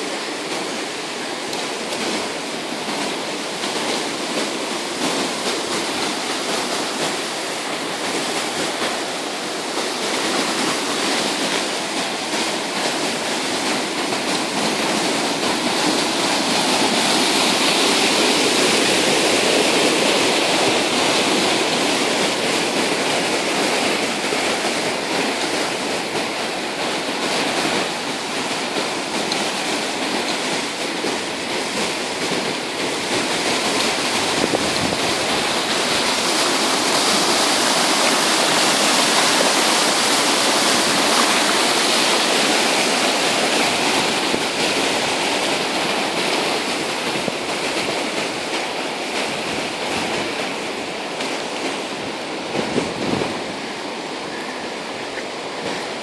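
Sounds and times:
river rushing over rocks: 0.0s - 56.0s.

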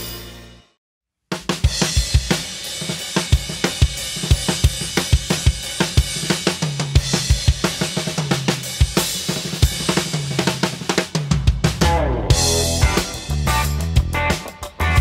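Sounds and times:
snare drum: 1.3s - 15.0s
cymbals and hi-hat: 1.4s - 15.0s
bass drum: 11.2s - 15.0s.

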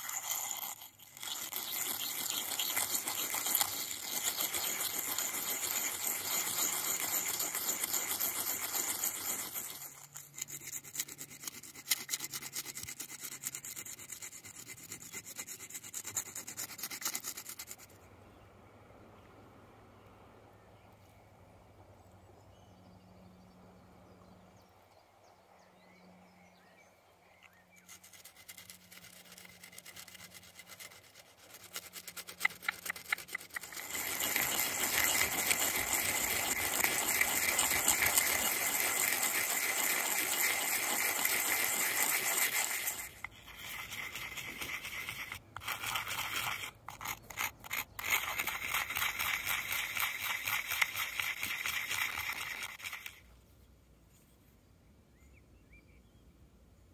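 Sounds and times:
bone grinding on stone: 0.0s - 17.9s, 27.8s - 53.2s.

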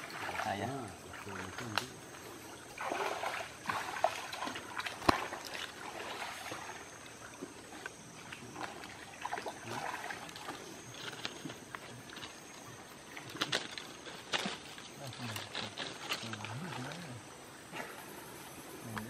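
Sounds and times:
water splashing and sloshing: 0.0s - 19.0s
sharp slap of water: 2.8s - 5.6s.

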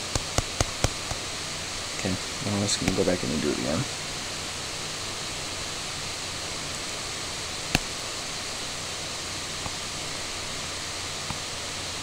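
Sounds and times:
microphone hiss: 0.0s - 12.0s
sharp click: 0.1s - 1.2s.

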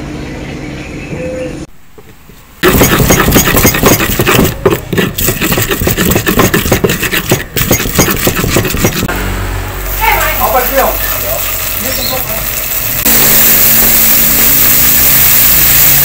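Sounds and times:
pestle grinding in stone mortar: 2.0s - 9.1s.

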